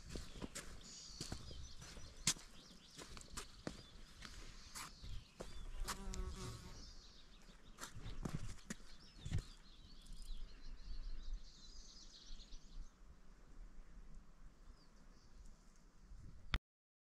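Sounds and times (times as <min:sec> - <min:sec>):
small birds chirping: 0:00.0 - 0:13.0
flying insect buzzing: 0:05.8 - 0:06.8
wind rumble on microphone: 0:16.0 - 0:16.6.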